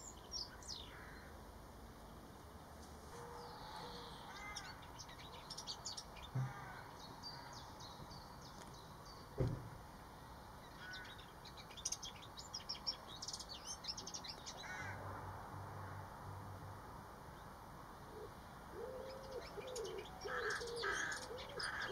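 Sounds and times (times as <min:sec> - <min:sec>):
songbirds twittering: 0:00.0 - 0:01.4, 0:03.2 - 0:14.9, 0:17.3 - 0:21.9
loud low thump: 0:09.4 - 0:09.8.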